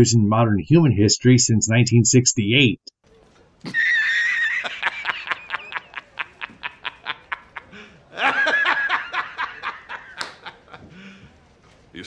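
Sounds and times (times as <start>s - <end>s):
man laughing hard: 3.7s - 11.0s.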